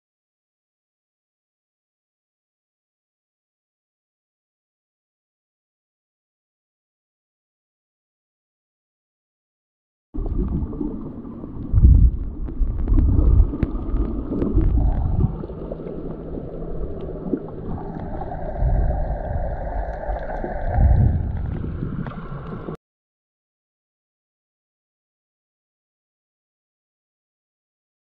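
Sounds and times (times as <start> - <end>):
steady underwater hum: 10.2 - 22.8
underwater rushing water: 10.2 - 22.8.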